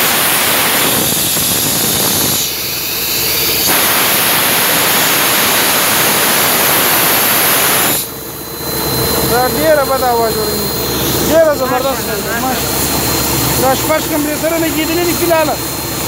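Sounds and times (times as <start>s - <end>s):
compressed air hissing from hose: 0.0s - 8.2s.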